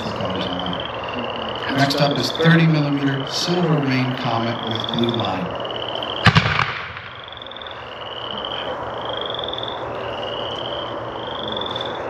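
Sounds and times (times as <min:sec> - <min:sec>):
frogs trilling: 0:00.0 - 0:12.0
firework bang: 0:06.2 - 0:07.5.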